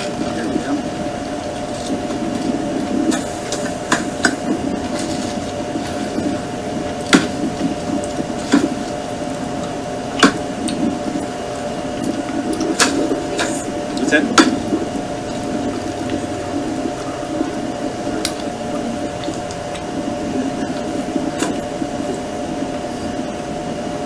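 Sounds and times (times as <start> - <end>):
honeybees buzzing: 0.0 - 24.0.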